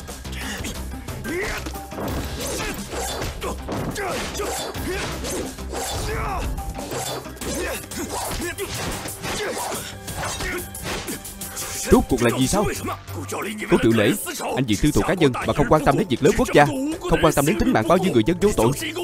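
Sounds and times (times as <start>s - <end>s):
dramatic background music: 0.0s - 19.0s
men grunting and shouting: 0.2s - 19.0s
punches and body blows: 1.2s - 11.4s.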